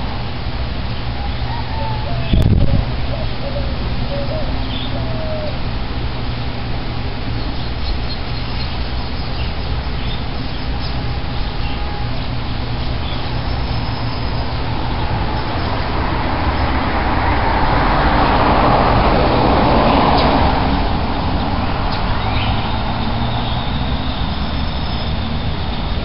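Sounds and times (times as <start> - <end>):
road traffic rumble: 0.0 - 26.0
vehicle passing: 8.8 - 26.0.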